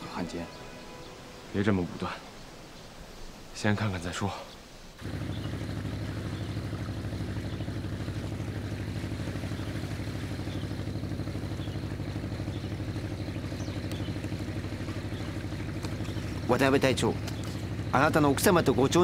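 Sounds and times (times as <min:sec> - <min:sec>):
motorboat engine chugging: 0:05.0 - 0:19.0.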